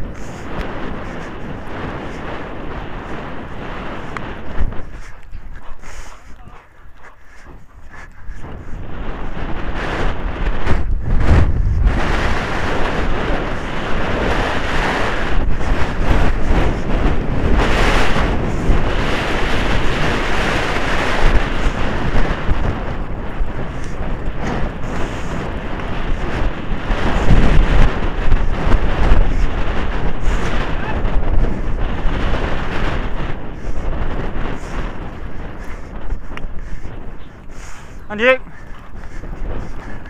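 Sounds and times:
wind buffeting microphone: 0.0s - 40.0s.

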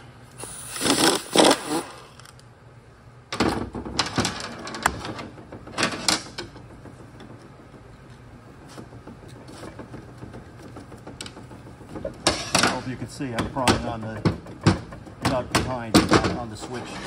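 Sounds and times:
impact wrench rattling bursts: 0.4s - 2.3s.

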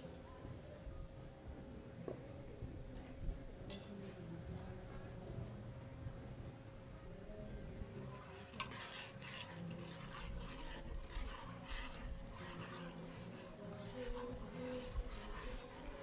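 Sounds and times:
utensil scraping saucepan: 7.9s - 16.0s.

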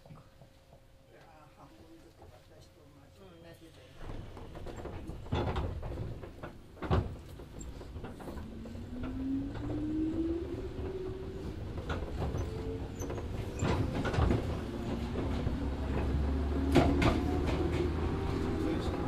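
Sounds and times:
low train rumble: 0.8s - 19.0s.

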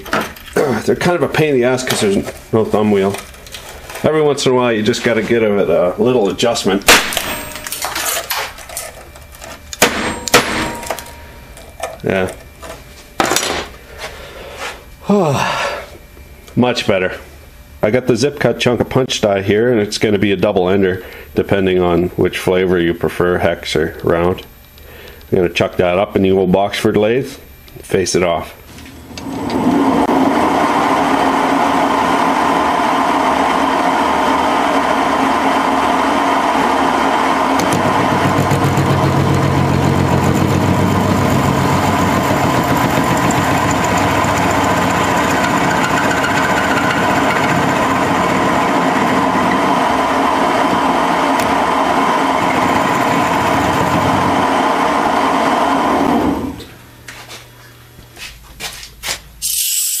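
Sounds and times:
metal lathe running: 29.0s - 56.6s.

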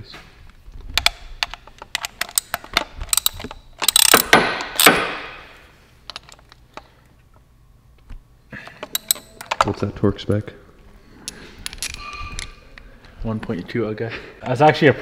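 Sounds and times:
hand ratchet clicking: 1.0s - 5.1s, 8.8s - 9.7s.

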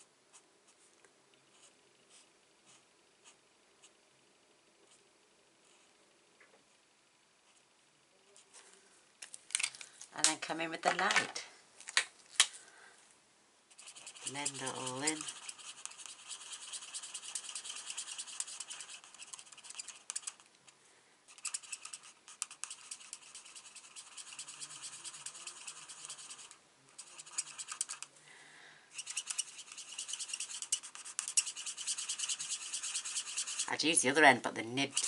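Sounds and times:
marker scratching on cardstock: 13.7s - 20.4s, 21.3s - 28.1s, 28.9s - 34.0s.

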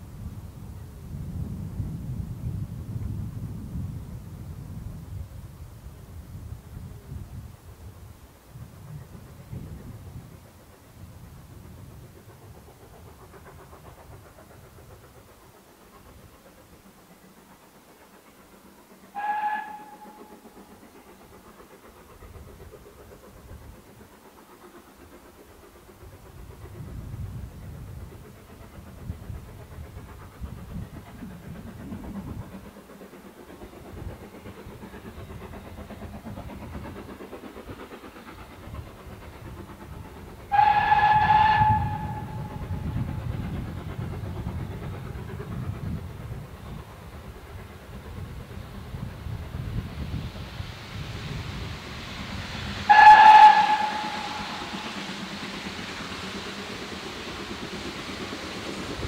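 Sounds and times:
train rumble: 0.0s - 59.0s
steam locomotive whistle: 19.1s - 20.4s, 40.5s - 42.9s, 52.8s - 55.0s.

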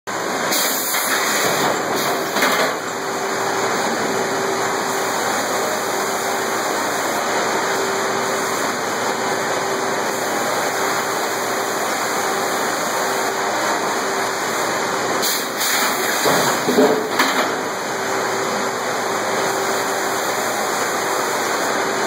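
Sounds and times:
sawmill machinery din: 0.1s - 22.0s.

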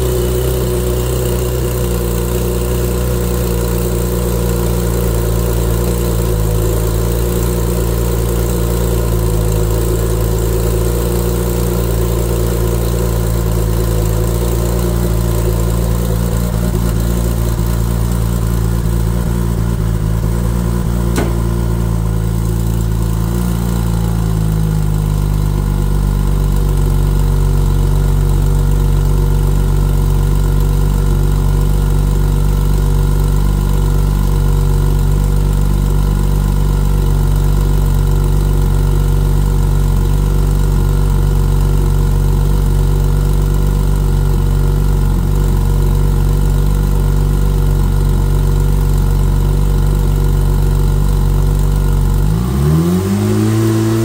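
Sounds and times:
car engine idling: 0.0s - 52.9s.

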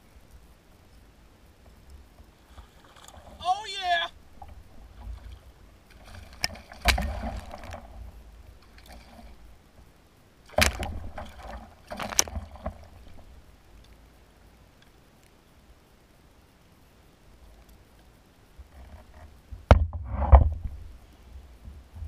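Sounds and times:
water splashing: 2.0s - 13.8s.

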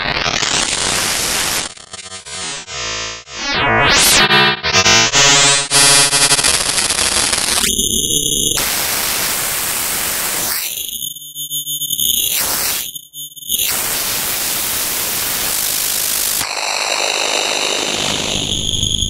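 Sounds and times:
synthesized noise hiss: 8.6s - 10.6s.

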